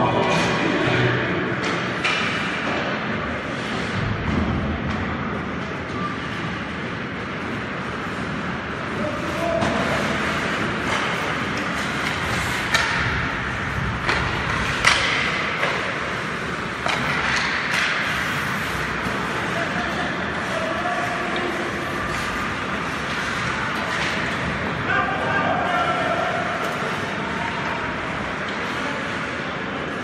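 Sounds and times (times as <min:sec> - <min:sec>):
hockey sticks clacking on puck: 0:01.6 - 0:04.0, 0:07.5 - 0:24.8
voices: 0:14.0 - 0:30.0.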